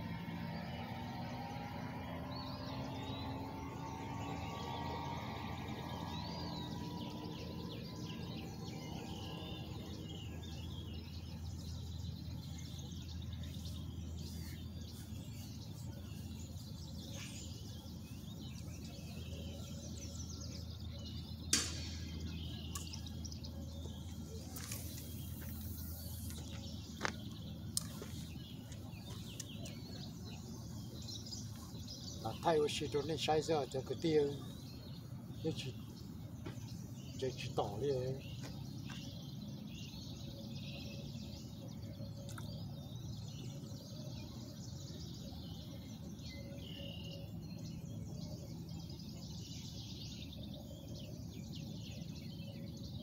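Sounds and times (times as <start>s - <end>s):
birds chirping: 0.0s - 53.0s
low background rumble: 0.0s - 53.0s
sharp click: 21.5s - 22.1s, 22.7s - 23.0s.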